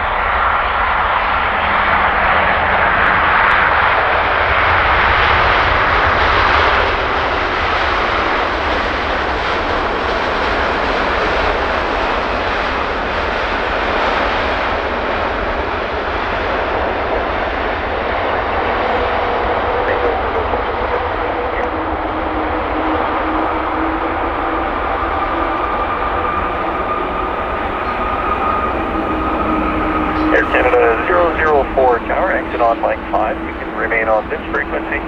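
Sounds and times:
jet engines rushing: 0:00.0 - 0:35.0
faint steady whine: 0:17.9 - 0:35.0.

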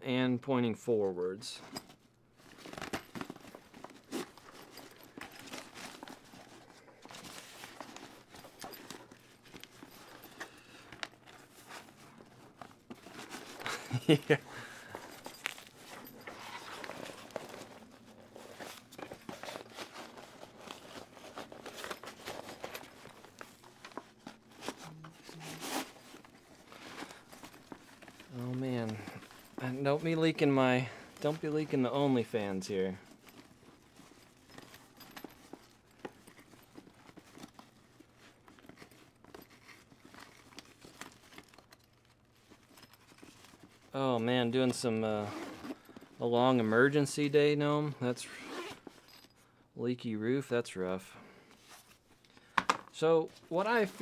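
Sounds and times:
nylon fabric rustling: 0:01.6 - 0:44.0, 0:44.9 - 0:46.3, 0:48.2 - 0:49.3
padded panel scraping in fabric pocket: 0:14.6 - 0:32.5, 0:45.2 - 0:46.2, 0:48.2 - 0:49.1.

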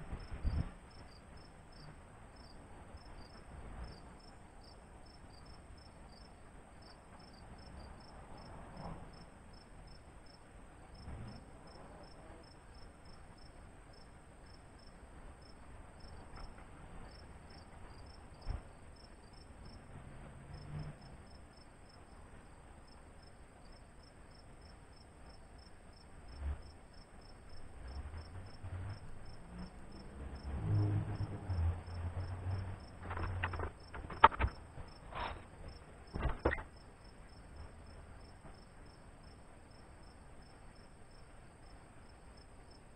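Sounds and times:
insect chirping: 0:00.2 - 0:10.4, 0:31.5 - 0:42.9
sharp knocks: 0:36.1 - 0:36.7.

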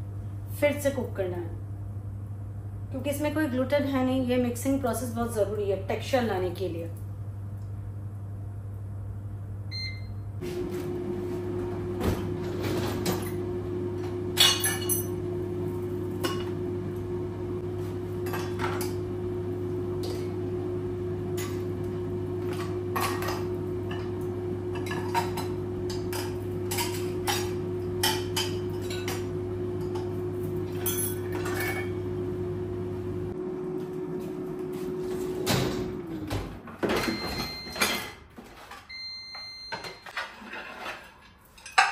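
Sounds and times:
air fryer fan hum: 0:00.0 - 0:37.6
dishes and cutlery clattering: 0:39.8 - 0:41.9.

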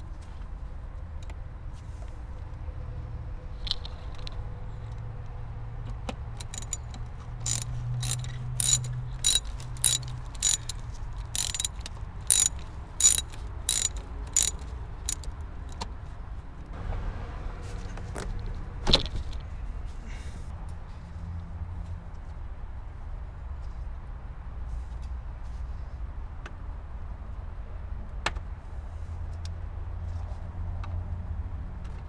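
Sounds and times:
ratchet wrench clicking: 0:06.4 - 0:15.4.

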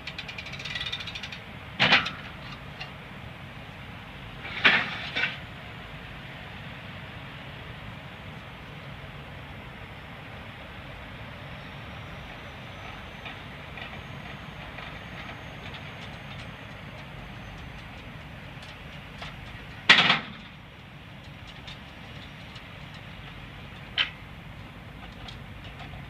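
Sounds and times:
metal clicks and rattles: 0:00.0 - 0:02.6.

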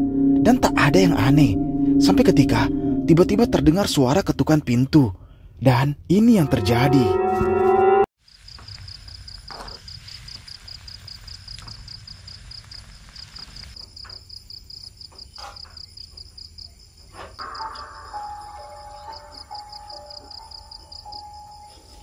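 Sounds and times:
cricket chirping: 0:08.2 - 0:22.0.

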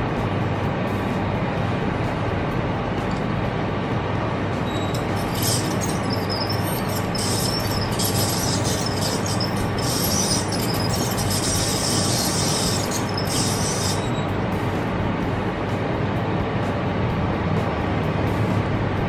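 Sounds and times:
high-pitched squealing whine: 0:04.6 - 0:14.9.

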